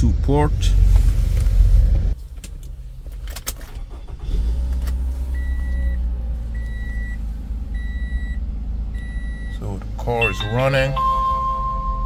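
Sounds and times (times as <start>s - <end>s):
car engine starting and idling: 0.0s - 12.0s
high electronic chime beeping: 10.2s - 12.0s.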